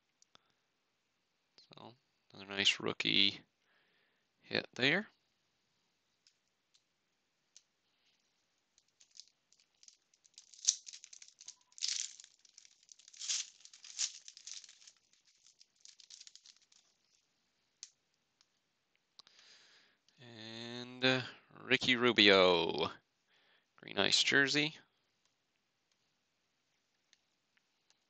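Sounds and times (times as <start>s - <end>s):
foil wrapper crinkling and tearing: 9.0s - 17.2s.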